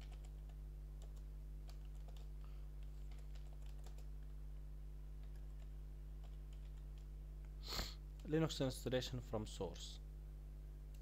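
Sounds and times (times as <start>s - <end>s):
computer keyboard typing: 0.0s - 4.3s, 5.2s - 7.1s
steady low hum: 0.0s - 11.0s.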